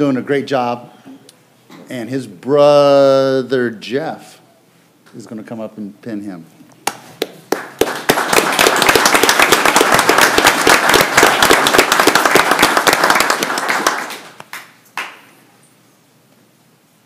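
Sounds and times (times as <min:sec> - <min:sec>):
crowd applauding: 0:07.2 - 0:15.2.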